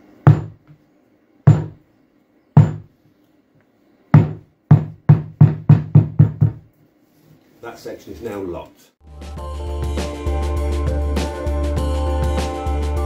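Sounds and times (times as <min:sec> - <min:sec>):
rubber mallet knocking on block: 0:00.3 - 0:00.6, 0:01.5 - 0:01.8, 0:02.6 - 0:02.9, 0:04.2 - 0:06.6.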